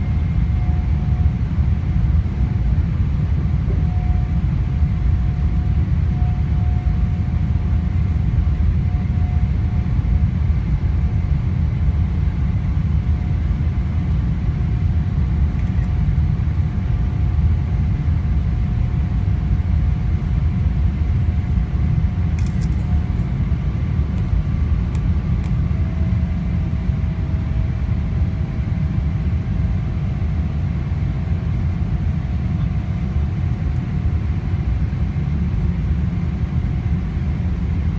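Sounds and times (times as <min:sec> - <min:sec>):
faint whining tones: 0:00.0 - 0:11.3
jet engines rumbling: 0:00.0 - 0:37.9.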